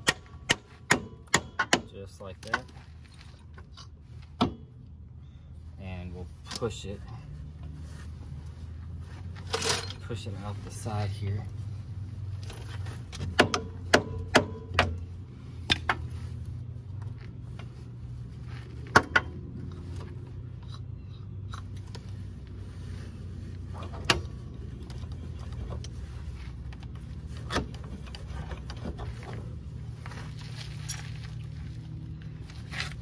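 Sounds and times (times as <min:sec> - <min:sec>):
sharp metallic clinks and knocks: 0:09.4 - 0:10.2.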